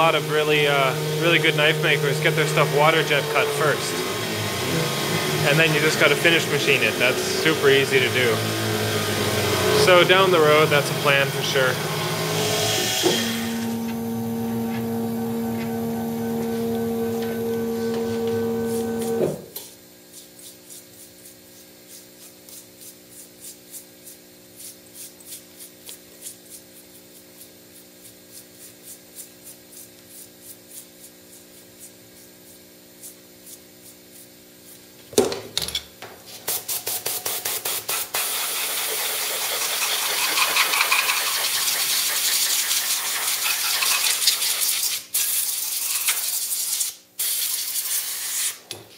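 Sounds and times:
milling machine humming: 0.0 - 19.5
brush sweeping metal chips: 38.2 - 46.7.

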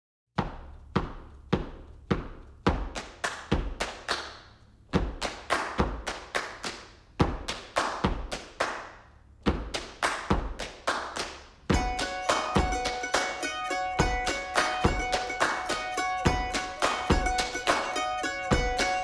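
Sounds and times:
sharp percussive hits: 11.7 - 19.0.

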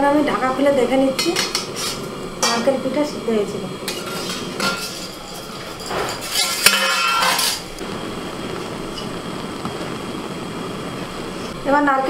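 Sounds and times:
steamer pot and lid clanking: 0.3 - 2.8, 3.8 - 7.8.

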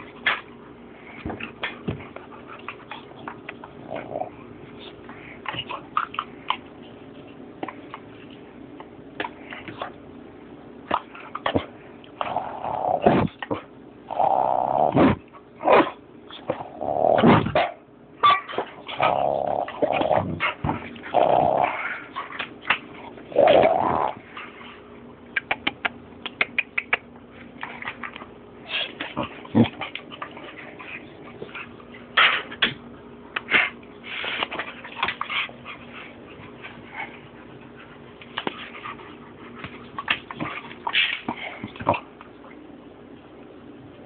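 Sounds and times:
puppy growling: 1.2 - 6.7, 10.9 - 17.6, 18.7 - 24.6, 25.3 - 32.8.

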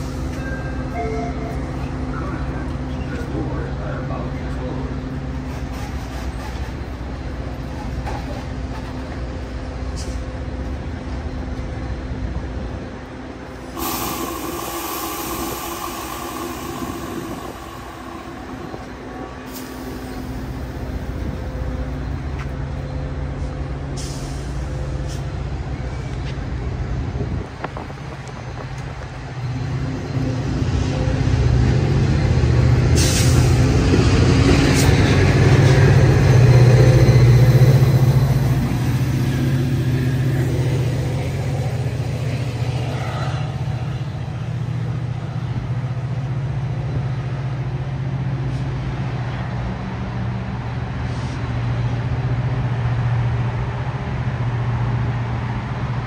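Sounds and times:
diesel locomotive engine running: 0.0 - 56.0
air hisses: 13.6 - 20.6.

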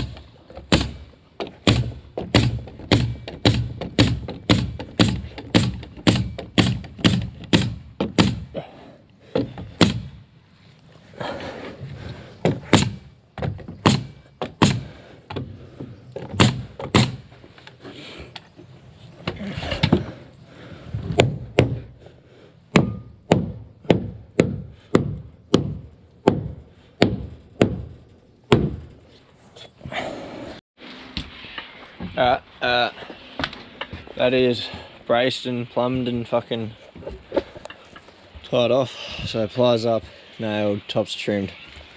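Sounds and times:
hammer driving nails into timber: 0.0 - 8.5, 9.3 - 10.2, 12.4 - 15.5, 16.2 - 17.3, 22.7 - 28.8.

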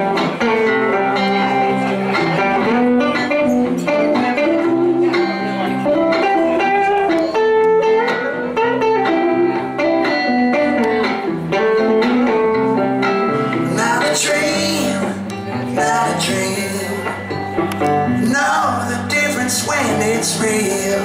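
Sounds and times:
electric guitars playing: 0.0 - 21.0.

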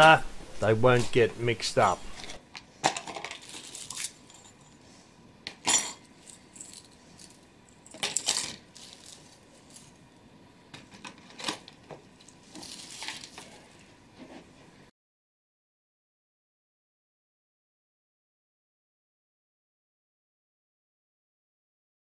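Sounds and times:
rustling: 2.0 - 4.8, 6.2 - 10.0, 11.1 - 14.6
metal parts clinking: 2.2 - 4.7, 5.6 - 9.9.

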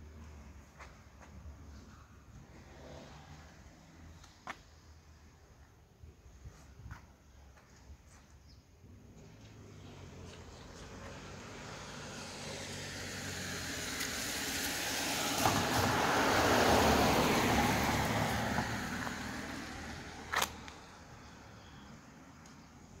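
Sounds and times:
passing vehicle rushing: 9.8 - 20.4.

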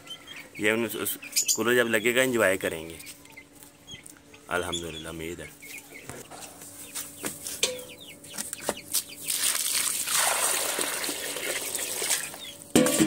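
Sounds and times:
birds chirping and clucking: 0.0 - 10.2, 10.8 - 13.0
water pouring into bowl: 9.3 - 12.3.

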